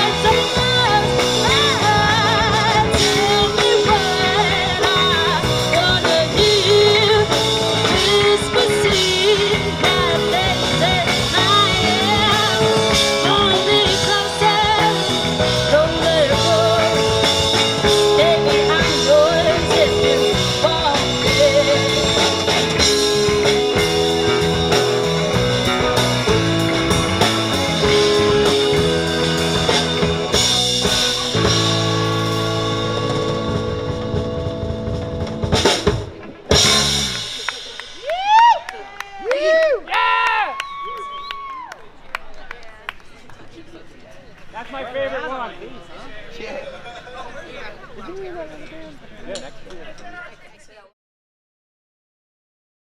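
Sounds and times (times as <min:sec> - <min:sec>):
woman singing: 0:00.0 - 0:24.8
drum kit with snare hits: 0:00.0 - 0:38.5
electric guitar: 0:00.0 - 0:38.6.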